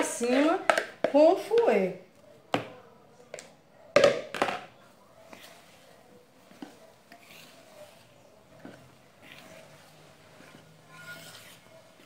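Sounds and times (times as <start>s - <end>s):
wire whisk scraping batter: 5.2s - 12.0s.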